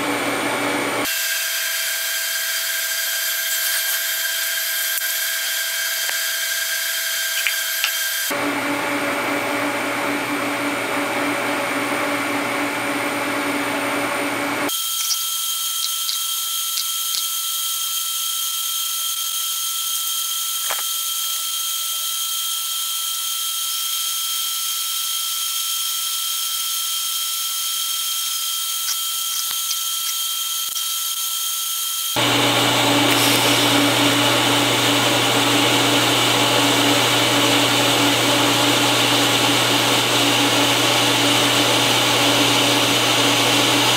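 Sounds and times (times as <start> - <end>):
welding arc hissing and buzzing: 1.0 - 8.3, 14.7 - 22.3, 25.4 - 35.1.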